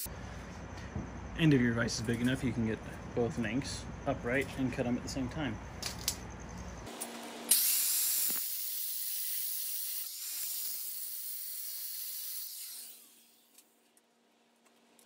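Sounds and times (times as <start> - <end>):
angle grinder cutting steel: 6.9 - 13.6.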